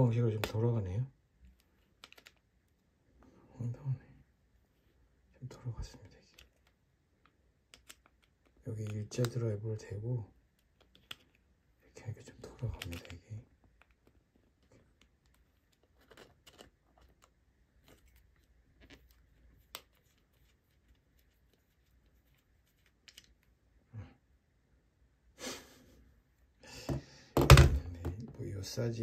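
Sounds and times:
hair dryer thumping on wooden table: 26.9s - 28.1s.

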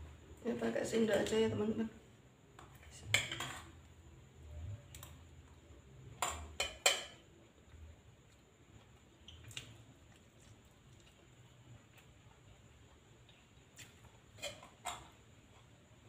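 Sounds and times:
metal spoon scraping a plate: 14.3s - 15.0s.

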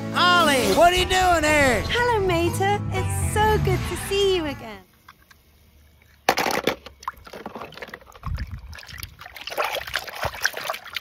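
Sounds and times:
water splashing in a tub: 6.0s - 11.0s.

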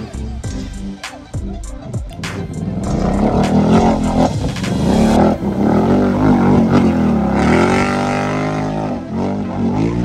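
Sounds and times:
quad engine revving: 2.2s - 10.0s.

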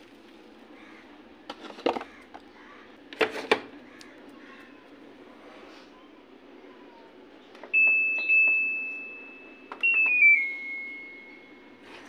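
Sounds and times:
control panel beeps: 7.6s - 11.7s.

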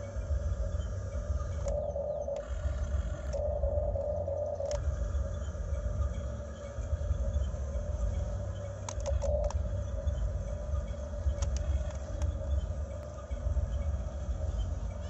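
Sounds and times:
electric gear motors whining: 0.0s - 15.0s
low rumble: 0.0s - 15.0s.

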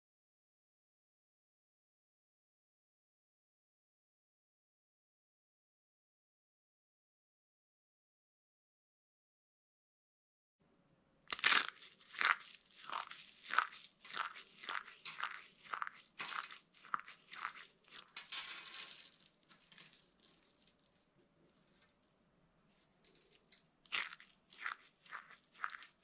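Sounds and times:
dry soap crunching in hands: 11.3s - 22.0s, 23.0s - 26.0s.

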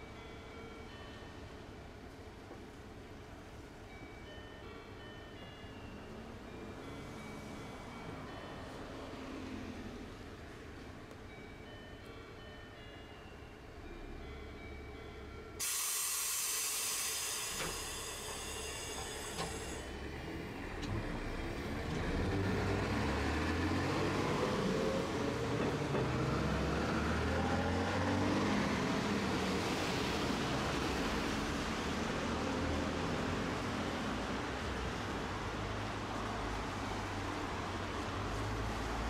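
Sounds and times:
tram rumble and motor whine: 0.0s - 39.0s
loud hiss of released air: 15.6s - 19.9s.

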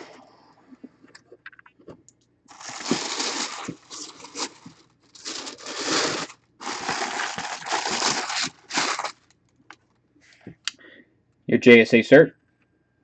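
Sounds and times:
tissue paper crinkling: 2.5s - 9.3s.

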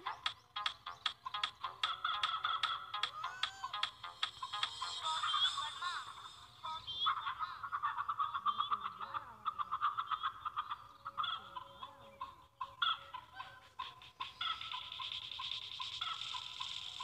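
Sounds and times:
chickens clucking: 4.3s - 17.0s.

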